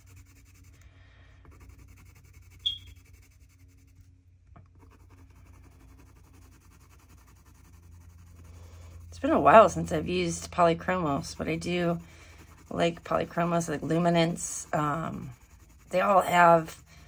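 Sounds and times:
colored pencil scratching on paper: 0.0s - 0.8s, 1.4s - 17.0s
high pencil squeak: 2.4s - 3.2s.

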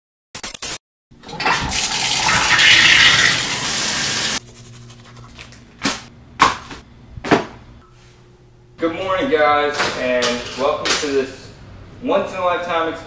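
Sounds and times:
room hum: 1.2s - 13.0s
shower head spraying water: 1.8s - 4.4s.

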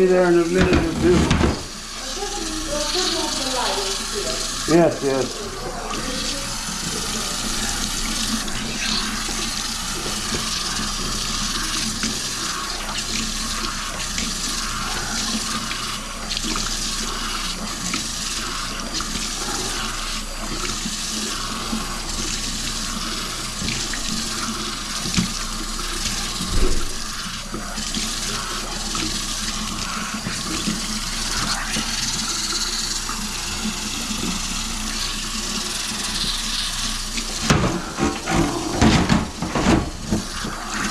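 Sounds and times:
faucet water running into sink: 0.0s - 40.9s
knocks on sink: 0.6s - 1.8s, 37.5s - 40.2s.

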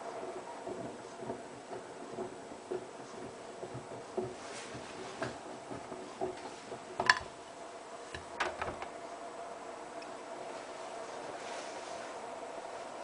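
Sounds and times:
washing machine drum turning: 0.0s - 9.1s.

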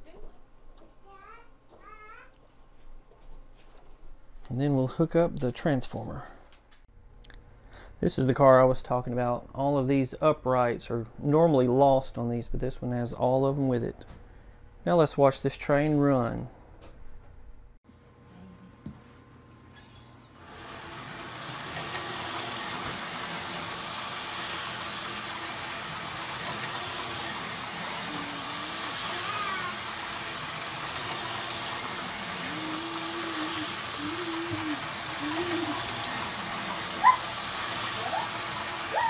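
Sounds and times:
toy train motor whirring: 20.4s - 39.0s.

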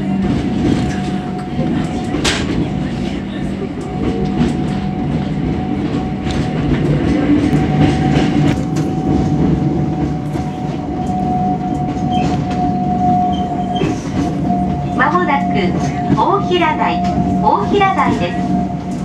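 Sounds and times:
train wheels rumbling on rail: 0.0s - 19.0s.

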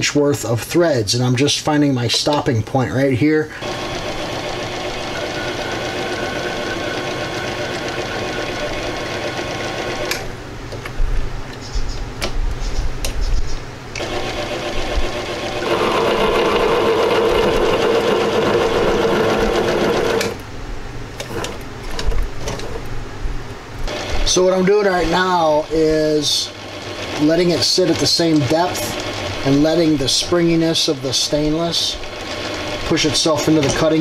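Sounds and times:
lathe motor and gears running: 3.5s - 10.3s, 13.9s - 20.4s, 23.8s - 34.0s.

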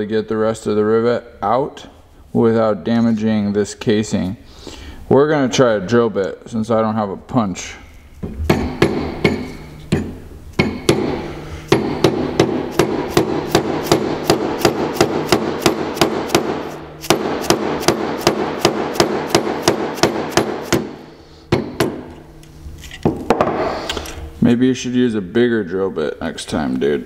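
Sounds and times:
hammer tapping metal punch: 8.5s - 22.2s.

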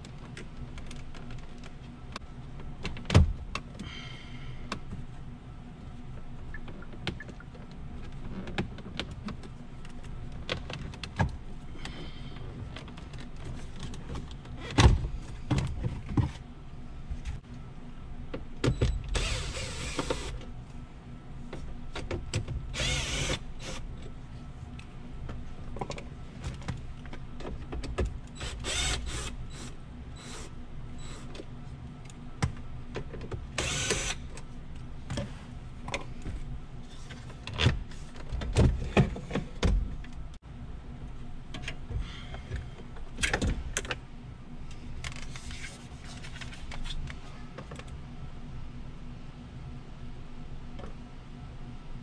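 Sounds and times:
cordless drill whirring: 19.2s - 20.4s, 22.8s - 23.8s, 28.4s - 31.2s, 33.6s - 34.2s.

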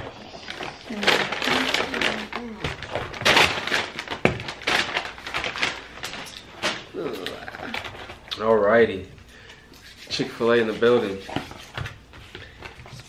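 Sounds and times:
paper bag crinkling: 0.0s - 8.7s.

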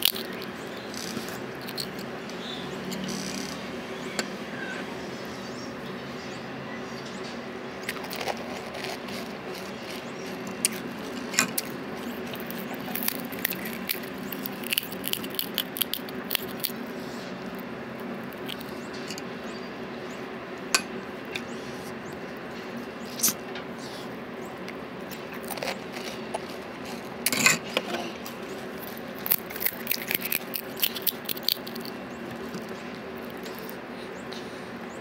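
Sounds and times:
crisp shells cracking: 0.0s - 2.1s, 7.9s - 16.9s, 17.5s - 18.8s, 28.4s - 33.8s
crunchy chewing: 0.0s - 3.6s, 7.8s - 19.3s, 21.2s - 34.6s
steady low hum: 0.0s - 35.0s.

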